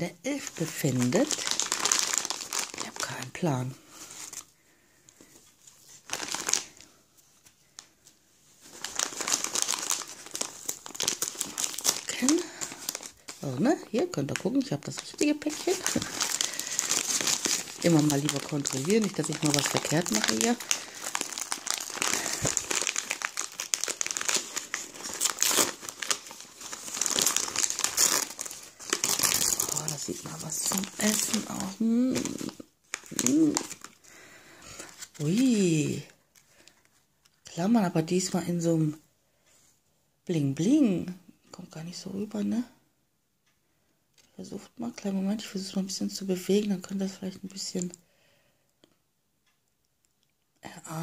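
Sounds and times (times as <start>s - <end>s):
wrapping paper crinkling: 0.3s - 37.4s.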